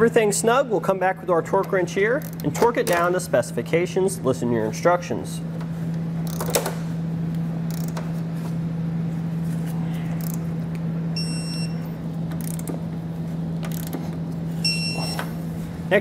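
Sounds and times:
steady low hum: 0.0s - 16.0s
torque wrench ratchet clicks: 6.2s - 6.6s, 7.7s - 8.0s, 10.2s - 10.4s, 12.4s - 12.8s, 13.6s - 14.0s
high beep: 11.2s - 11.8s, 14.6s - 15.2s.

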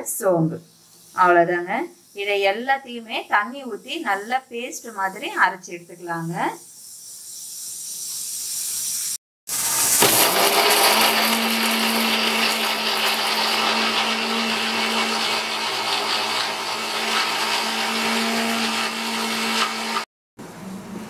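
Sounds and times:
mixer grinder motor humming: 9.5s - 20.1s.

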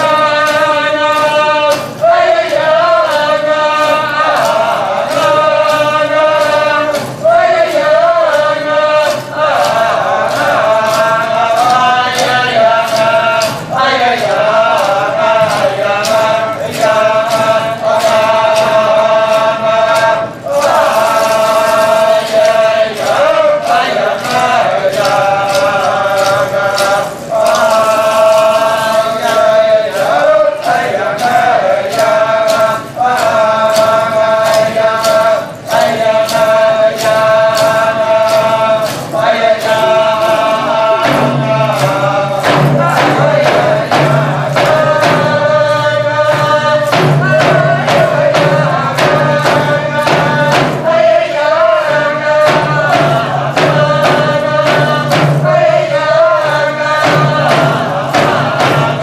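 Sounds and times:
frame drums beaten: 0.0s - 59.0s
group chanting in unison: 0.0s - 59.0s.

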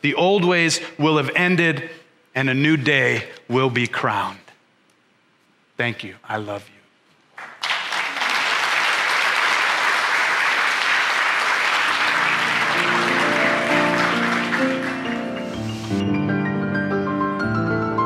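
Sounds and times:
crowd applauding: 7.4s - 15.6s
piano chords: 11.7s - 18.0s.

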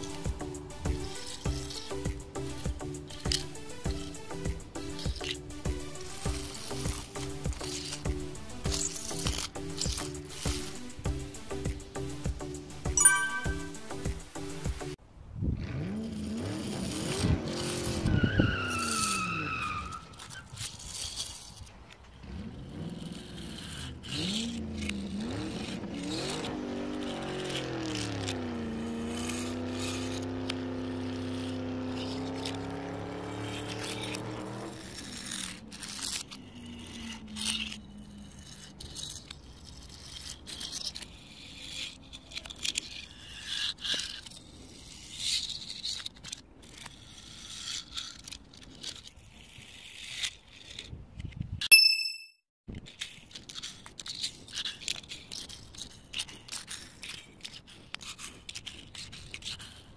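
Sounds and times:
toy cars scraping on asphalt: 0.0s - 51.7s, 52.7s - 59.9s
tire squeal: 15.7s - 21.6s, 22.2s - 45.8s
car engine revving: 22.2s - 38.2s.

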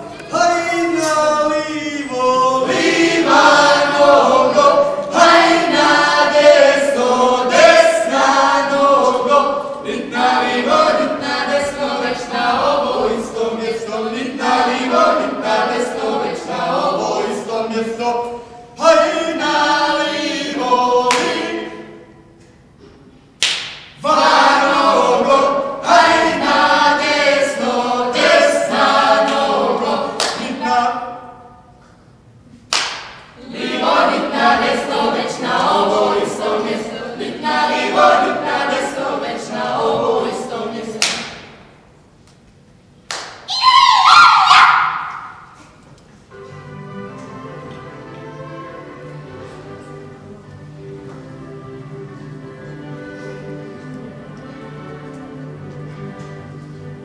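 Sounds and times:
group singing a cappella: 0.1s - 22.2s, 24.0s - 31.4s, 33.4s - 41.6s.

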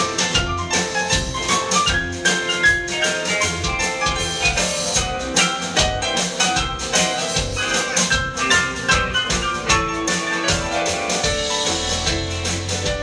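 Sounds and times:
drum kit beat: 0.0s - 13.0s
rock band playing: 0.0s - 13.0s.

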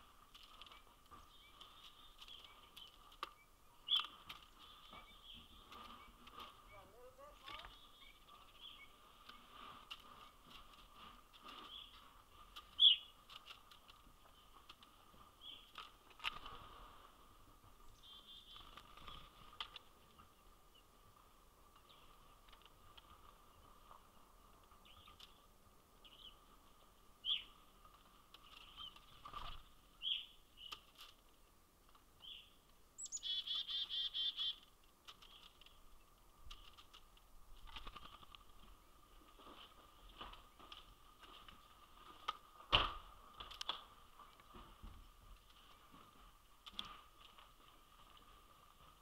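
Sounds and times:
faint steady background noise: 0.0s - 49.0s
bird chirps and calls: 0.7s - 9.5s, 12.7s - 13.2s, 17.9s - 18.7s, 27.2s - 27.6s, 30.0s - 30.8s, 32.2s - 34.6s.

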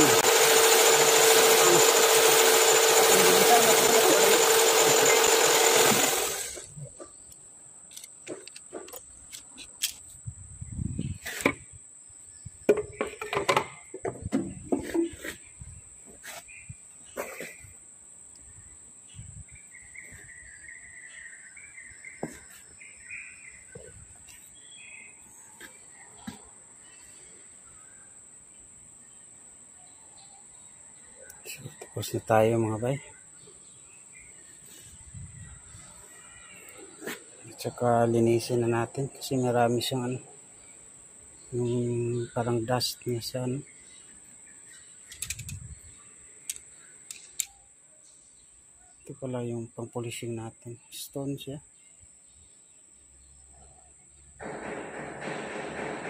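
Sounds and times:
stone hone grinding whir: 0.0s - 6.8s.

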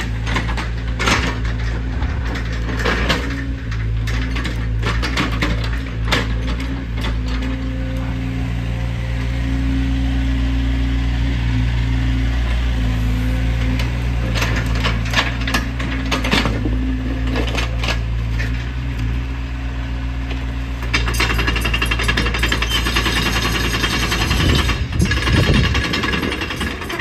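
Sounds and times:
excavator diesel engine: 0.0s - 27.0s
steel tracks rattling: 21.0s - 27.0s.

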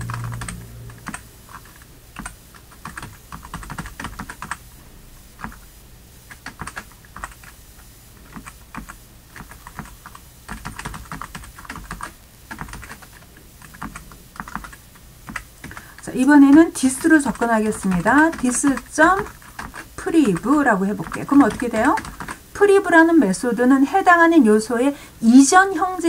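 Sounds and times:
keyboard typing: 0.0s - 4.6s, 6.3s - 7.6s, 8.2s - 22.4s.

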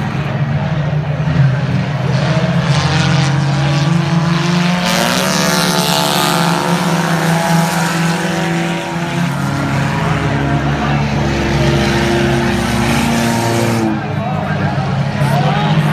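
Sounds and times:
race car engines: 0.0s - 15.9s
race car passing by: 0.0s - 15.9s.

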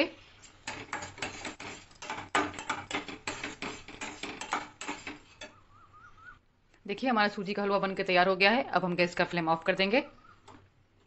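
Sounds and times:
metal spatula scraping metal pot: 0.2s - 5.6s.

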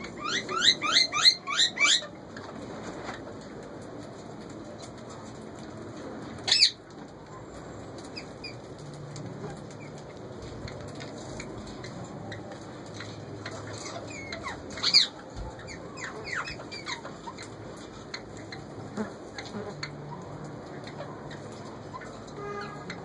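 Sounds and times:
parakeet screeching: 0.0s - 2.1s.

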